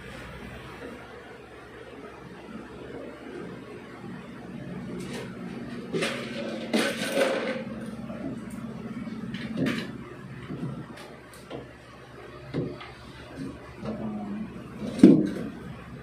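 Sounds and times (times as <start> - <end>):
knocks on furniture panels: 12.5 - 12.8.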